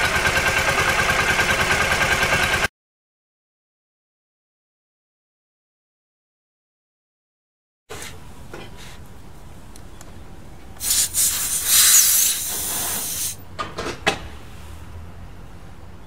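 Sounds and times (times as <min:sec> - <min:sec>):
air hissing from tyre valve: 0:10.8 - 0:13.4.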